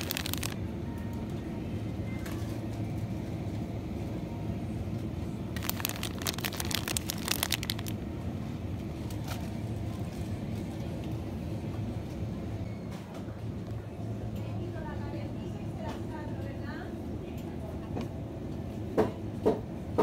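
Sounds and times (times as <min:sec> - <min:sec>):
plastic packaging crinkling: 0:00.0 - 0:00.6, 0:05.6 - 0:08.0
low supermarket hum: 0:00.0 - 0:20.0.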